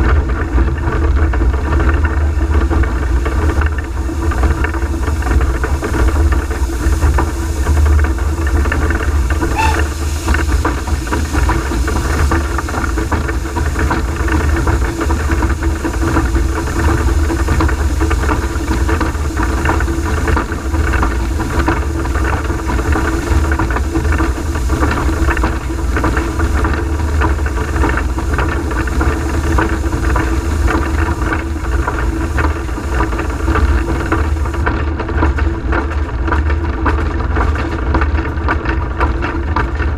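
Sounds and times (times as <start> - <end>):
steam locomotive cab rumble: 0.0 - 39.9.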